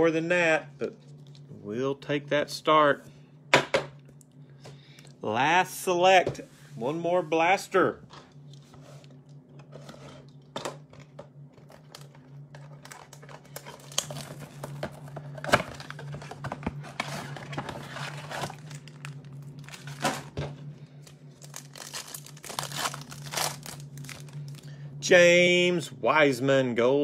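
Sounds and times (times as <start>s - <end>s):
steady low hum: 0.0s - 27.0s
crinkling foil card packs: 11.7s - 24.8s.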